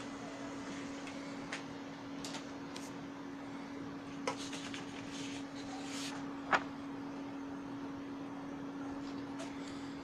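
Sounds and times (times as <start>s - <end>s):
printer humming: 0.0s - 10.0s
paper rustling: 4.3s - 6.8s.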